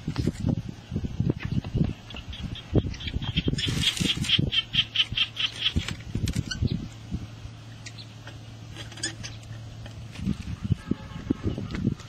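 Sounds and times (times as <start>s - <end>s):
rustling of dry grass and bag: 3.5s - 4.6s.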